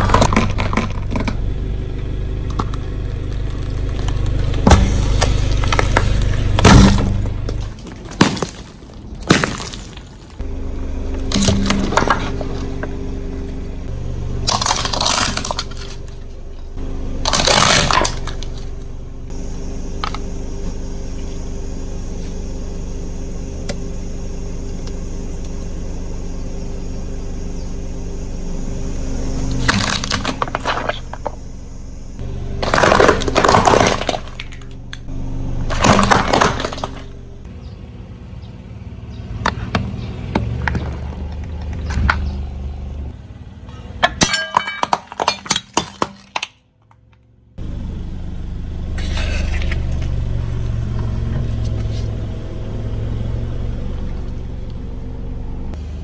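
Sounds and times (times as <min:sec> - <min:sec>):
tyre crushing crunchy objects: 0:00.0 - 0:13.7, 0:14.4 - 0:19.4, 0:29.3 - 0:31.5, 0:32.2 - 0:35.0, 0:35.6 - 0:37.4, 0:39.4 - 0:42.6, 0:44.0 - 0:46.6
car engine humming: 0:00.0 - 0:56.0.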